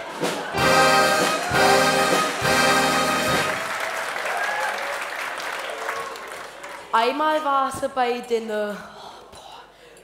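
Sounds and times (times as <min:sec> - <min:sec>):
brass band fanfare chords: 0:00.0 - 0:04.2
audience applause: 0:00.0 - 0:07.0.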